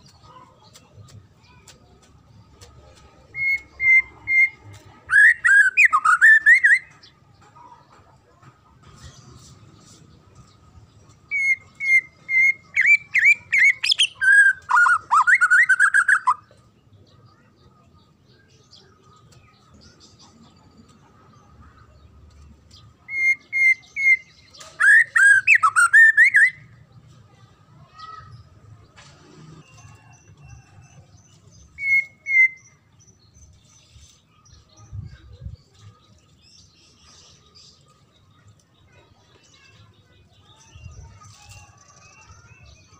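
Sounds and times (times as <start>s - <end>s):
bird singing whistles and trills: 3.4s - 7.0s, 11.3s - 16.5s, 23.1s - 26.6s, 31.7s - 32.8s
faint high bird chips: 8.9s - 17.6s, 18.4s - 28.6s, 29.4s - 42.9s.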